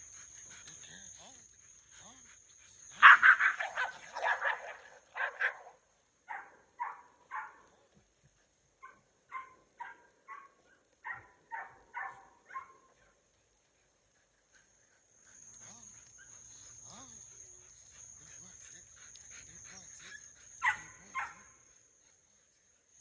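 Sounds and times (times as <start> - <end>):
dogs barking: 0.0 - 8.2, 8.8 - 21.6
puppies yipping: 3.0 - 7.8, 8.8 - 13.2.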